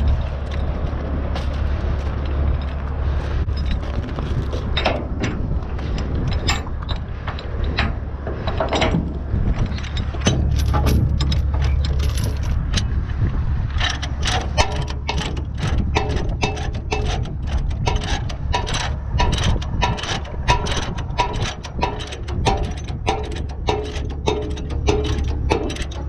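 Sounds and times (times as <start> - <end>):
steady low drone: 0.0 - 26.0
metallic ratchet clicks: 13.7 - 26.0.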